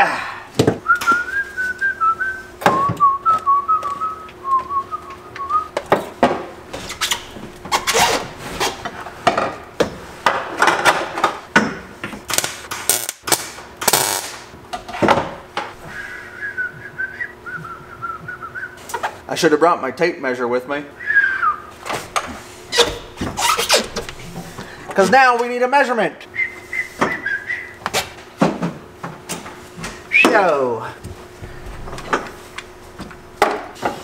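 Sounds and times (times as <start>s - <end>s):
person whistling a tune: 0.8s - 5.7s, 15.9s - 18.8s, 21.0s - 21.7s, 26.3s - 27.8s.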